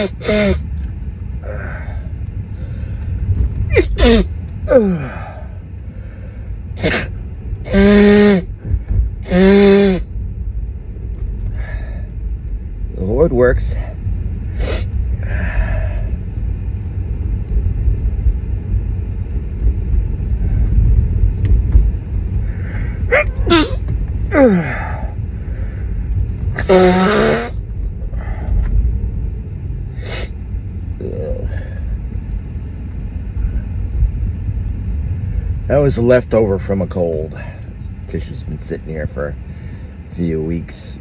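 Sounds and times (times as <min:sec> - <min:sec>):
person sneezing: 0:00.0 - 0:00.6, 0:03.7 - 0:05.2, 0:06.8 - 0:08.4, 0:09.3 - 0:10.0, 0:23.1 - 0:25.0, 0:26.6 - 0:27.6
car rumble: 0:00.0 - 0:41.0
breathy vocal sounds: 0:01.4 - 0:03.1, 0:03.7 - 0:07.1, 0:22.4 - 0:26.0, 0:31.0 - 0:32.0.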